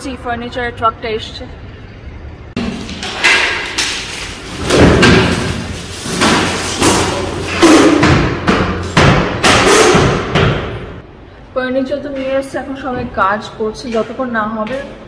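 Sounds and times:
panels and boxes thumping on tiles: 0:02.6 - 0:11.0.

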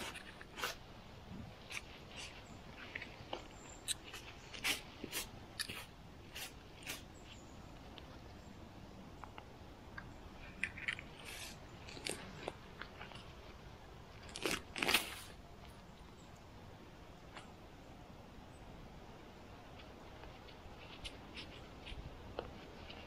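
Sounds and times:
crunching of soil and leaf litter: 0:00.0 - 0:18.3, 0:19.1 - 0:23.0.

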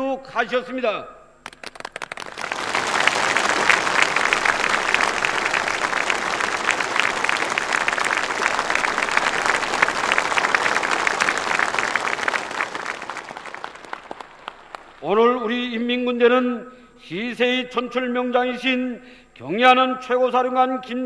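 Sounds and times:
crowd applause: 0:01.5 - 0:15.4.

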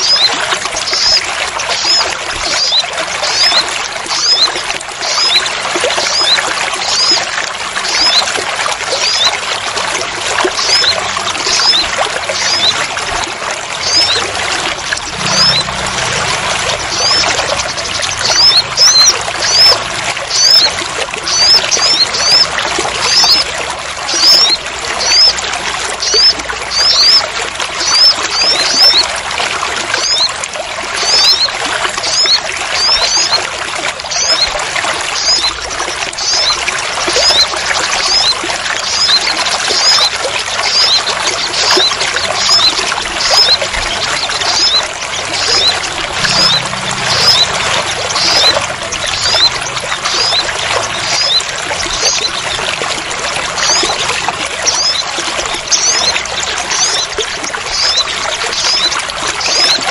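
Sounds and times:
small bird chirping: 0:00.0 - 0:03.6, 0:04.2 - 0:07.2, 0:10.6 - 0:12.8, 0:13.8 - 0:14.2, 0:16.8 - 0:23.4, 0:24.1 - 0:25.3, 0:26.0 - 0:27.2, 0:27.8 - 0:29.0, 0:30.0 - 0:30.3, 0:31.0 - 0:33.4, 0:34.1 - 0:34.5, 0:35.2 - 0:40.1, 0:40.7 - 0:52.6, 0:54.7 - 0:55.0, 0:57.7 - 0:59.8
heavy rain pouring: 0:08.0 - 0:27.2, 0:43.4 - 0:55.0.

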